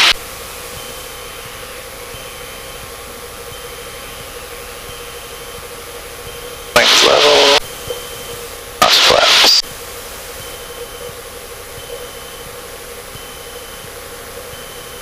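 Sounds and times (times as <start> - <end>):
light aircraft engine drone: 0.0 - 15.0
loud voice burst: 6.8 - 7.6.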